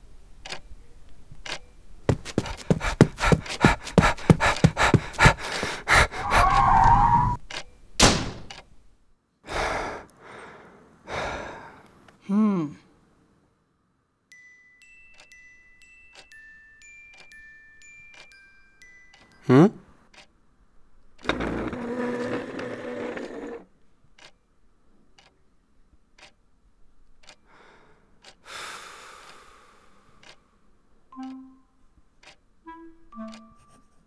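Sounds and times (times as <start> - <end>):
faint steady ticking: 1.4 - 5.9, 14.3 - 20.4, 22.8 - 34.0
quick sliding sound: 4.5 - 7.4.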